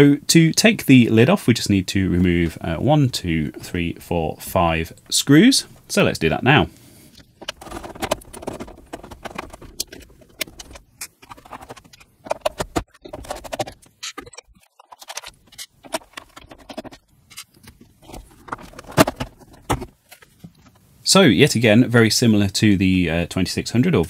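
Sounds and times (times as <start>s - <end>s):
screwdriver clicks and scrapes: 7.1s - 18.5s.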